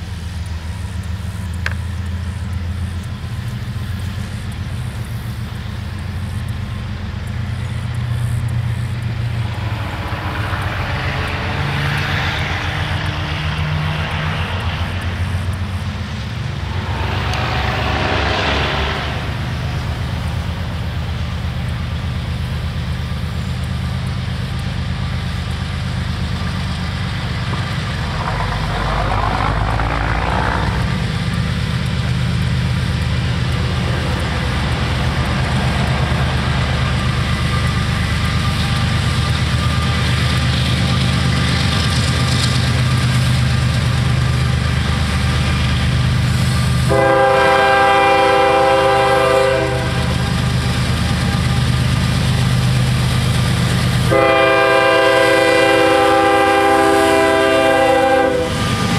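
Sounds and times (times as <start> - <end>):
low engine drone: 0.0 - 58.9
vehicle rushing past: 9.1 - 21.0, 27.2 - 31.7.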